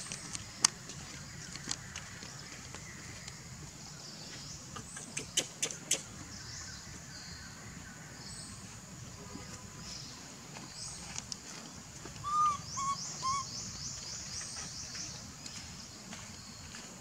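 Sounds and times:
bird hooting: 0:12.2 - 0:13.6
high-pitched bird chirps: 0:12.3 - 0:13.5.

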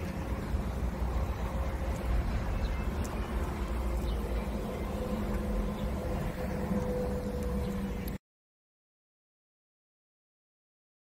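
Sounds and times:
electric forklift motor hum: 0:00.0 - 0:08.2.

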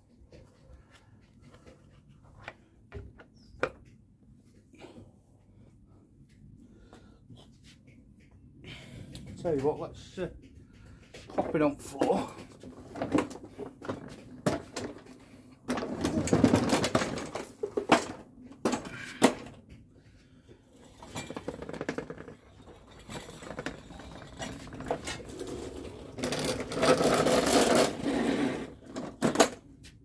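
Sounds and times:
knocks and metallic clatter: 0:07.9 - 0:28.0.

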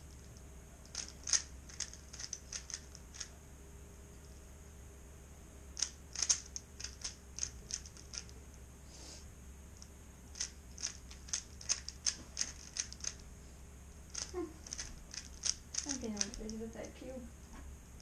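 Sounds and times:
puzzle cube plastic clicks: 0:00.2 - 0:03.3, 0:05.8 - 0:08.4, 0:09.8 - 0:13.2, 0:14.1 - 0:16.4.

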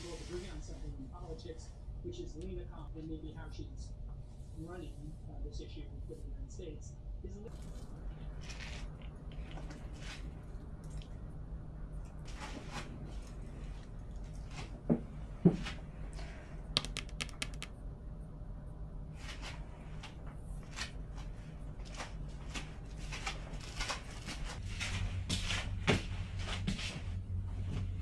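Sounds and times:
low steady hum: 0:00.0 - 0:28.0.

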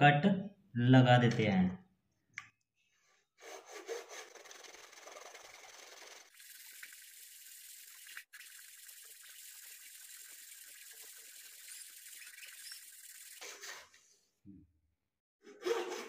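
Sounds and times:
hacksaw sawing wood: 0:03.4 - 0:06.1.

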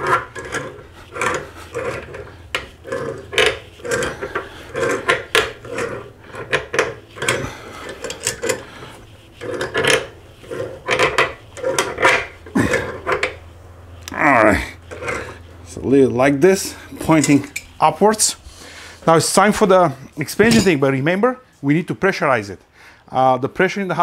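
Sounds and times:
tool rasping on pipe fittings: 0:00.0 - 0:13.5, 0:14.8 - 0:15.7.

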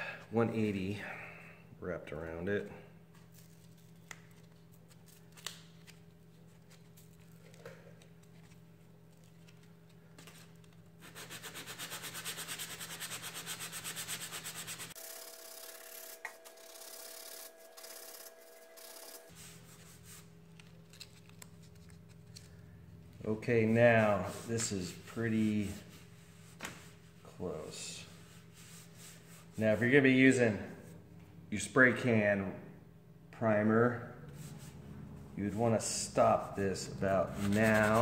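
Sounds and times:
sandpaper scratching strokes: 0:11.0 - 0:15.0, 0:35.7 - 0:38.0.

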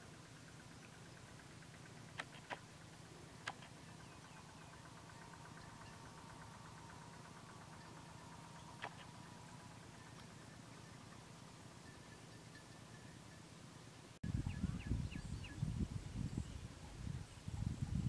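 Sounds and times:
steady hum: 0:00.0 - 0:16.4
sharp clicks: 0:02.1 - 0:02.6, 0:03.4 - 0:03.8, 0:08.7 - 0:09.2
fast even ticking: 0:03.3 - 0:11.3.

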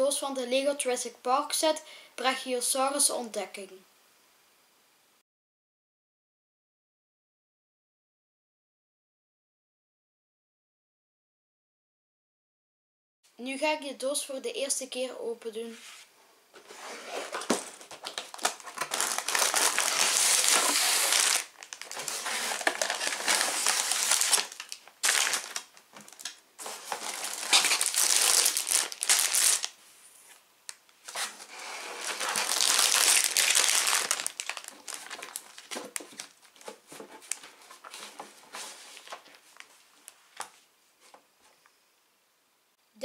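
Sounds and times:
plastic bags crinkling and rustling: 0:16.6 - 0:29.8, 0:31.0 - 0:40.6.

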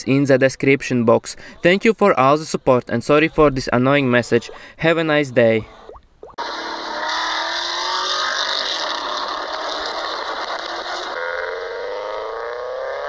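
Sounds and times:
car engine accelerating: 0:06.4 - 0:13.0.

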